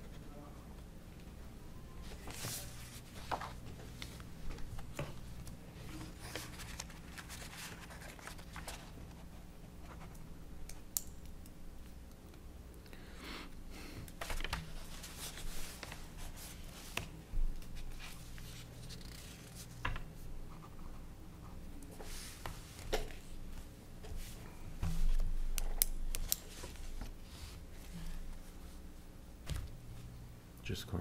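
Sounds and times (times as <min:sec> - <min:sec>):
low steady hum: 0:00.0 - 0:31.0
papers rustling: 0:02.0 - 0:10.1, 0:14.2 - 0:20.1.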